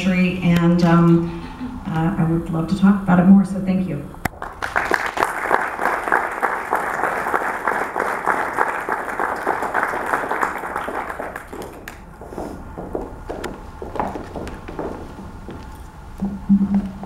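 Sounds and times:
audience applauding: 4.3 - 12.4.

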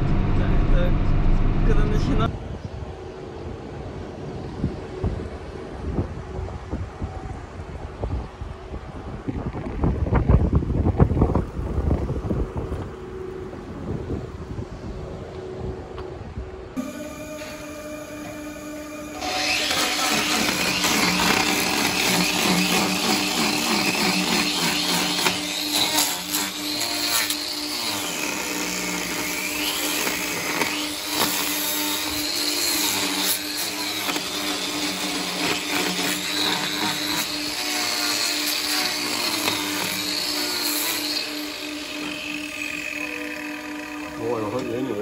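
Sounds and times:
angle grinder grinding hoof: 16.8 - 45.0.

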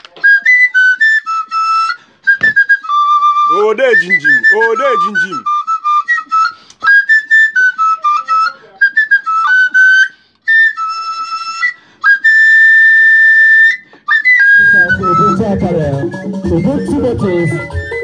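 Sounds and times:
flute playing a tune: 0.0 - 18.0
music with a beat: 15.0 - 18.0.

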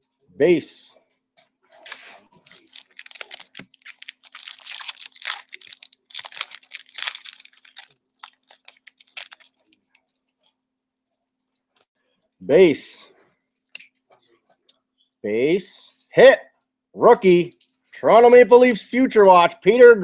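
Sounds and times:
foil wrapper tearing and crinkling: 2.4 - 9.9
cards ticking in hands: 2.5 - 10.4.

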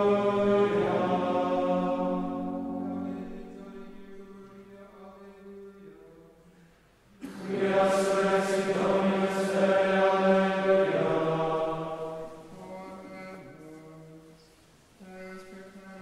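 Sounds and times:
choir singing plainchant: 0.0 - 4.4, 7.2 - 13.6.

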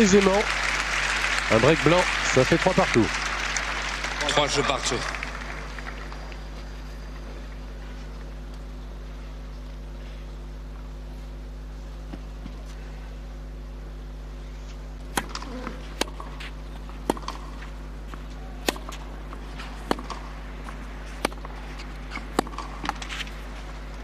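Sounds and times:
steady low hum: 0.0 - 24.0
racket hitting tennis ball: 15.0 - 23.8.

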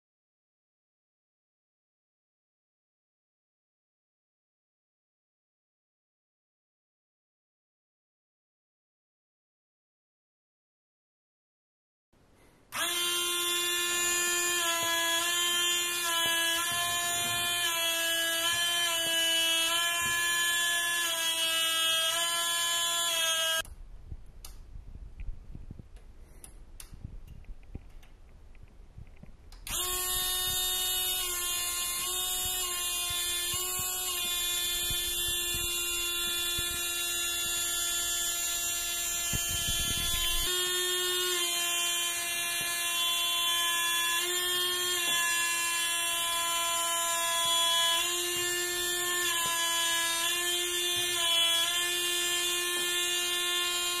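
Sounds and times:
water pump buzzing hum: 12.7 - 23.7, 29.6 - 54.0.

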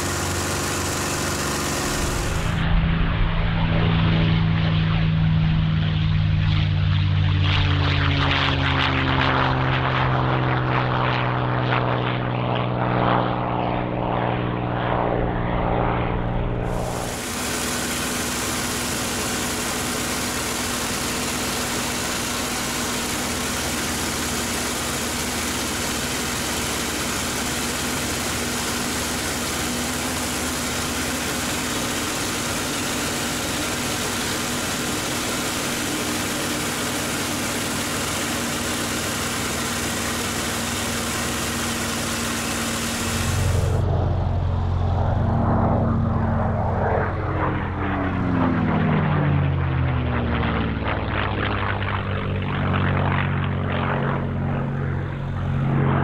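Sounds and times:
steady hum: 0.0 - 6.8, 16.5 - 46.6
cockpit engine drone: 0.0 - 56.0
propeller plane engine climbing: 0.0 - 56.0
rush of airflow: 0.1 - 4.6, 16.5 - 25.3, 26.1 - 47.1.

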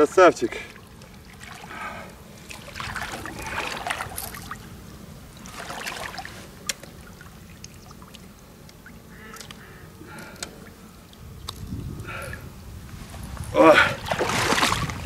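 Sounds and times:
water splashing and dripping: 0.6 - 4.7, 5.3 - 9.6, 13.7 - 15.0.

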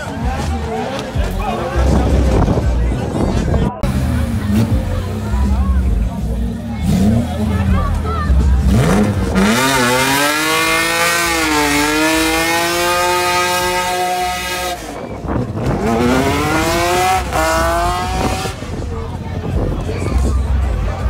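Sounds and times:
car engine revving hard: 6.8 - 8.0, 8.6 - 18.9.

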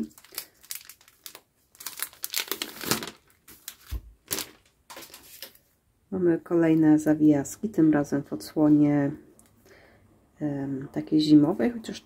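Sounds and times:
packaging crinkling: 0.0 - 5.6.

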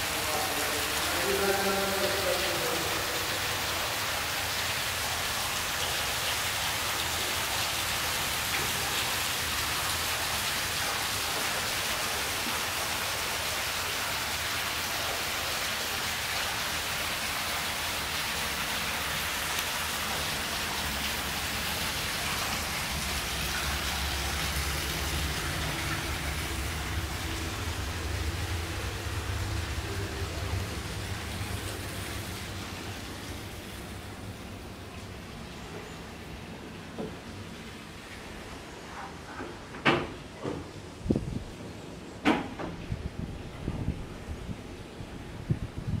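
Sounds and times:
steady rushing hiss: 0.0 - 38.8
low rumble: 24.2 - 34.4.

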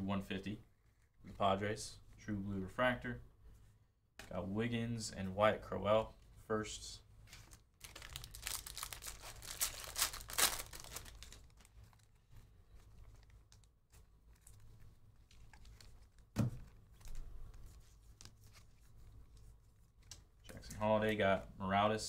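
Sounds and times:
plastic wrapper tearing and crinkling: 7.3 - 17.6
handling card stack: 7.3 - 21.2
thump: 16.4 - 16.6.

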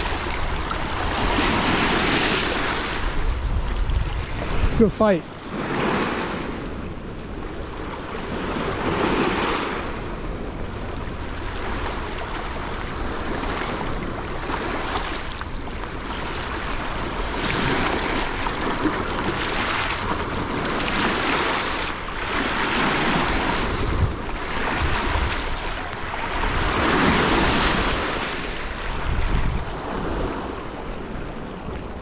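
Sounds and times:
wind buffeting microphone: 0.0 - 32.0.

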